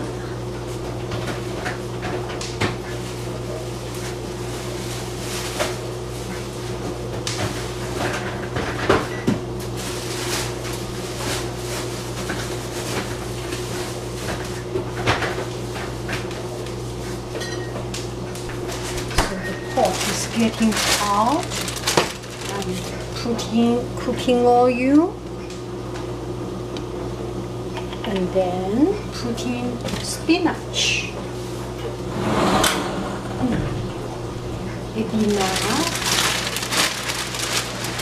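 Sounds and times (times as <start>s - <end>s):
steady low hum: 31.7s - 37.8s.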